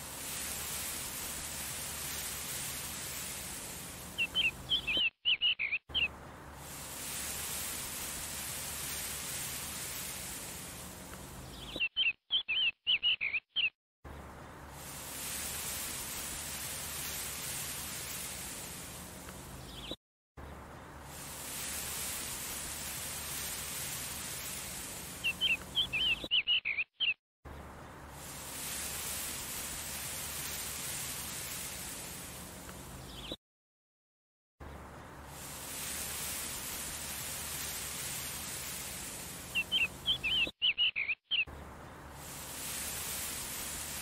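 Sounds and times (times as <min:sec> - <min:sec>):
steady outdoor hiss: 0:00.0 - 0:13.4, 0:14.1 - 0:26.8, 0:27.5 - 0:33.4, 0:34.6 - 0:44.0
high bird chirps: 0:04.2 - 0:06.1, 0:11.4 - 0:13.8, 0:25.2 - 0:27.2, 0:39.5 - 0:41.5.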